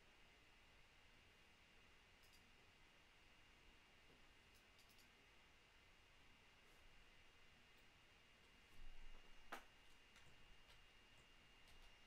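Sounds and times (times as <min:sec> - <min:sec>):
faint room tone hiss: 0:00.0 - 0:12.0
faint short clicks: 0:04.5 - 0:05.1.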